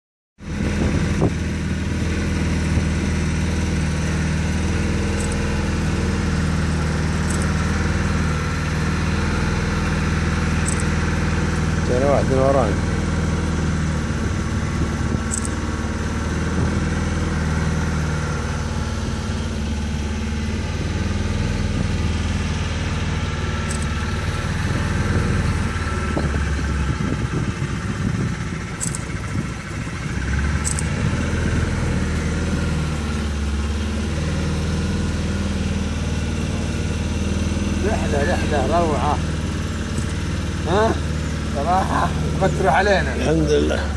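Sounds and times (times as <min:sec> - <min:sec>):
outboard motor running: 0:00.4 - 0:43.9.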